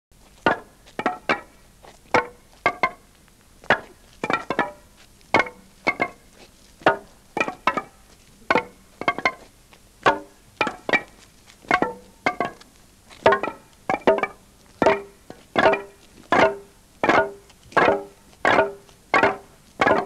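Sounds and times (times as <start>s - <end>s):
sharp plucked instrument notes: 3.7s - 4.8s, 5.4s - 6.2s, 6.8s - 9.5s, 10.1s - 20.0s.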